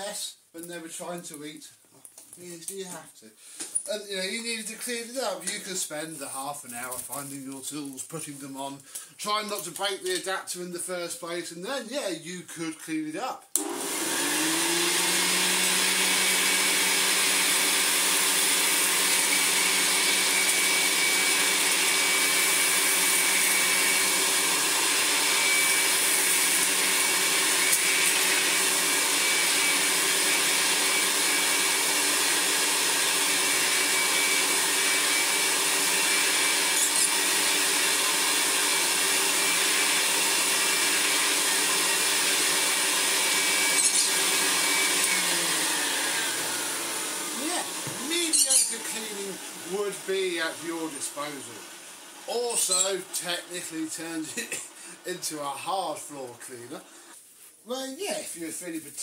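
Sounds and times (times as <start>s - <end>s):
vacuum cleaner running: 13.6s - 57.1s.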